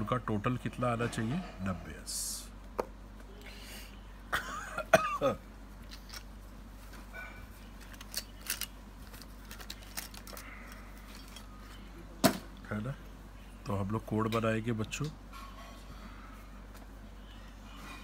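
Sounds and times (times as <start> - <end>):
man coughing: 4.4 - 5.4
small objects clicking: 7.8 - 11.4.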